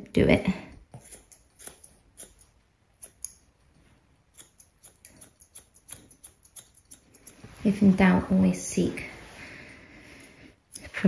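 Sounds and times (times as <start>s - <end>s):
scissors snipping hair: 0.9s - 3.4s, 4.3s - 7.6s, 10.7s - 11.0s.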